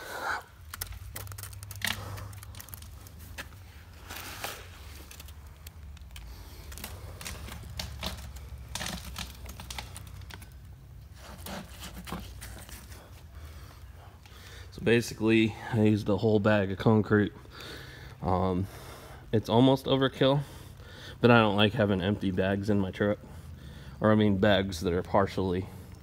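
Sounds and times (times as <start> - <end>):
hand scraping wet concrete: 0.0 - 13.2.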